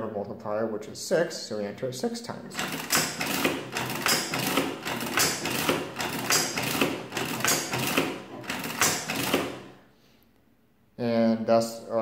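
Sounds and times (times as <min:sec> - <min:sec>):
adding machine clattering: 0:02.6 - 0:09.8.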